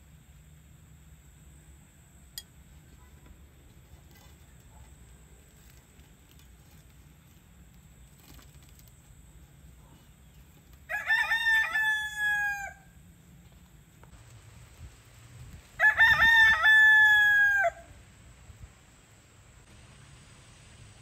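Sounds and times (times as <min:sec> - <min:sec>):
faint background sound: 0:00.0 - 0:11.9
rooster crowing: 0:10.9 - 0:13.0, 0:15.8 - 0:18.0.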